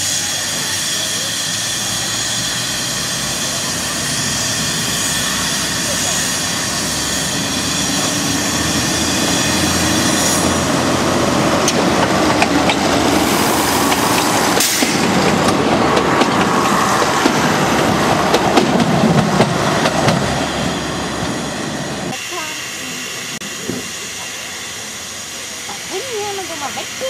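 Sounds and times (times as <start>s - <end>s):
diesel railcar engine running: 0.0s - 27.0s
wheels clicking over rail joints: 11.6s - 20.3s.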